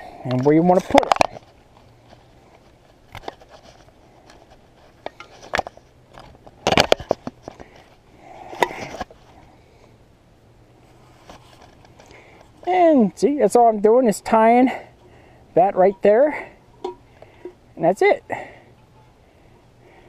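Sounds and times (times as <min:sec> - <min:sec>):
cord scraping rustle: 0:00.0 - 0:09.9, 0:10.8 - 0:17.6.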